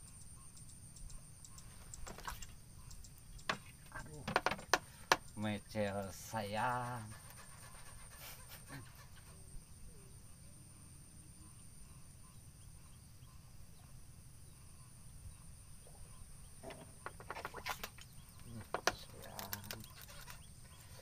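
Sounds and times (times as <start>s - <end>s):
distant animal calls: 6.2s - 10.4s, 11.4s - 21.0s
faint high whine: 9.4s - 17.2s.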